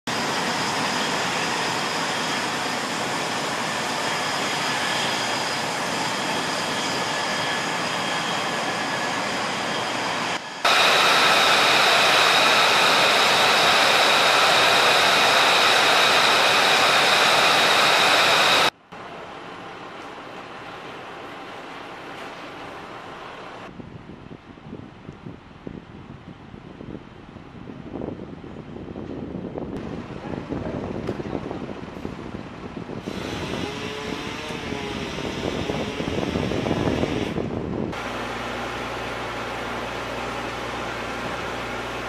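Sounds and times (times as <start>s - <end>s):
jet engine whining: 0.1s - 18.8s, 29.8s - 42.0s.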